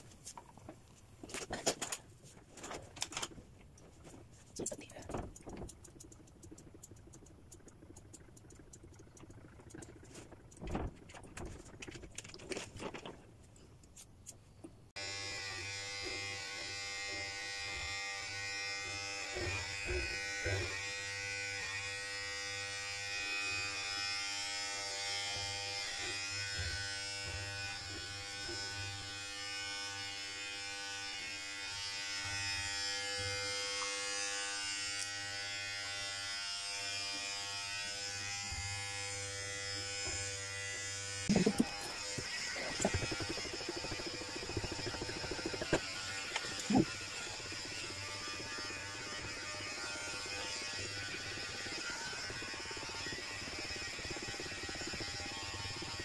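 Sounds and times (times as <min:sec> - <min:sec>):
hair clippers buzzing: 0:15.0 - 0:56.0.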